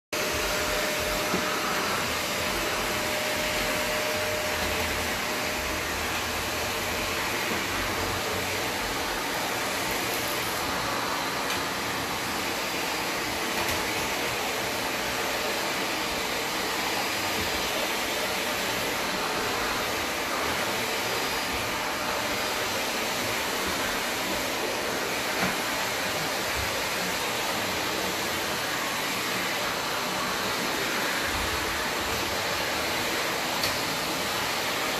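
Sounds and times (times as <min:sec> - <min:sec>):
vacuum cleaner running: 0:00.1 - 0:34.9.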